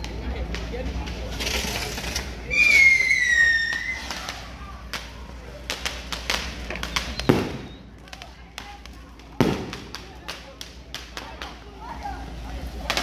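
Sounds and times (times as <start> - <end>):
firecracker cracks: 0.0 - 13.0
firework whistle: 2.5 - 4.4, 6.8 - 8.0.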